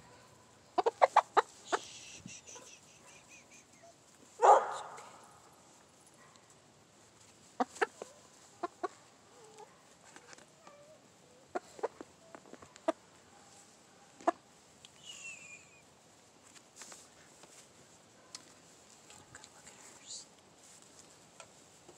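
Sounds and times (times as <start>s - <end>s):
hen clucking softly: 0.8s - 3.9s, 7.6s - 9.7s, 10.6s - 13.0s.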